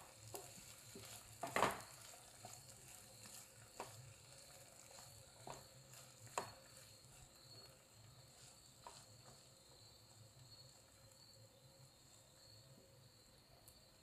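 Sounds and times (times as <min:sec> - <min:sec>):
spatula tapping and scraping pan: 0:00.0 - 0:09.6
faint sizzle: 0:00.0 - 0:14.0.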